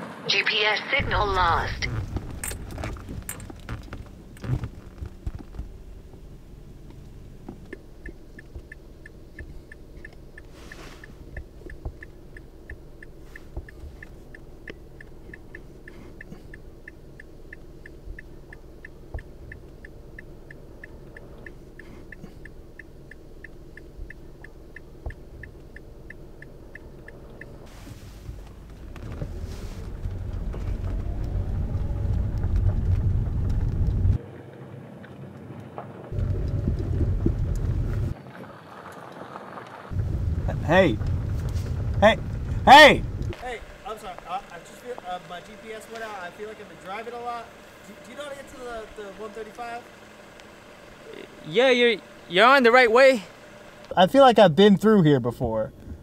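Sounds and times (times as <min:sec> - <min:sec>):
car interior rumble: 0:00.0 - 0:56.0
high regular ticking: 0:01.0 - 0:27.7, 0:39.9 - 0:56.0.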